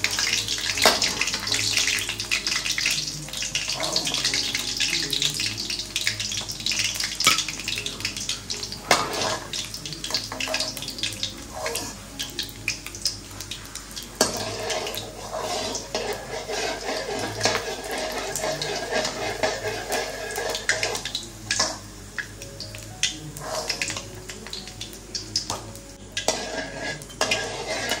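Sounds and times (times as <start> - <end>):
ladle clinking and scraping pan: 0.0 - 4.7, 6.4 - 12.3, 14.2 - 21.8, 23.4 - 24.0, 26.2 - 28.0
oil sizzling in wok: 0.0 - 28.0.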